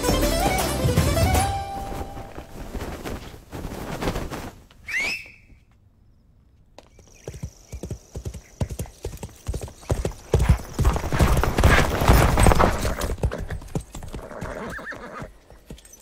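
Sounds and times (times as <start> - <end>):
short high call: 4.9 - 5.6
horse hooves galloping: 6.8 - 16.0.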